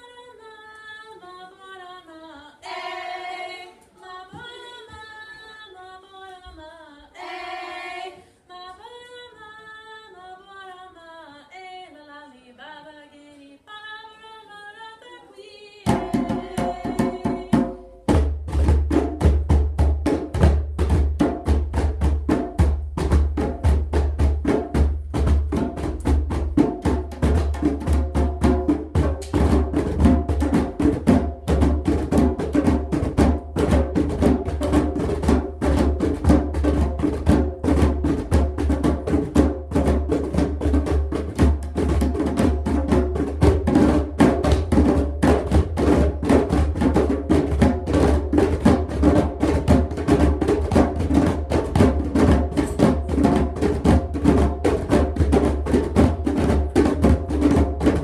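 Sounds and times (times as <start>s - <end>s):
people singing unaccompanied: 2.0s - 5.4s, 6.5s - 8.3s, 15.2s - 17.8s
hand drums beating fast: 15.9s - 58.0s.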